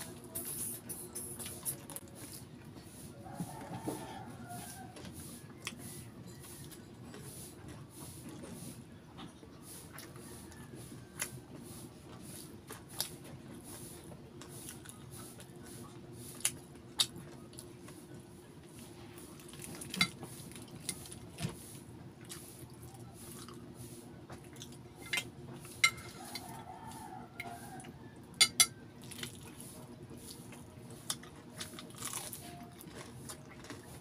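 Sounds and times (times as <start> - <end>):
chewing with mouth clicks: 14.4 - 21.3, 22.2 - 23.7, 24.3 - 27.9, 29.0 - 34.0.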